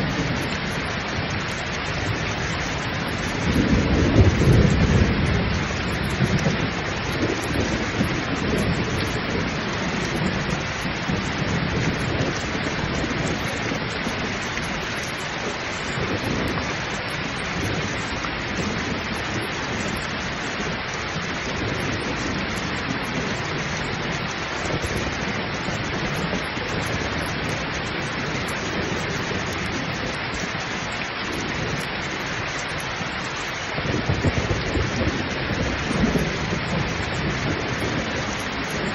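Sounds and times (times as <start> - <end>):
heavy rain: 0.0 - 38.9
thunder rumbling: 0.0 - 38.9.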